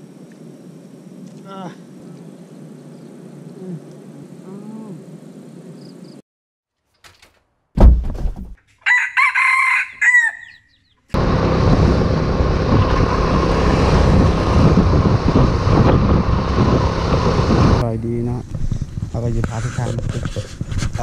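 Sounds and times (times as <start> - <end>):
sudden thump: 7.1 - 8.6
rooster crowing: 8.8 - 10.7
motor scooter riding: 11.2 - 17.8.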